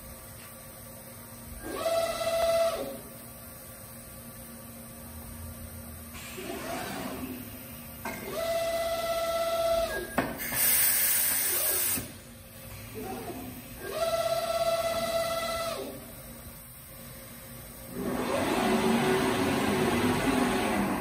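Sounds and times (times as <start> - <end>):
compressed air hiss: 10.4 - 12.2.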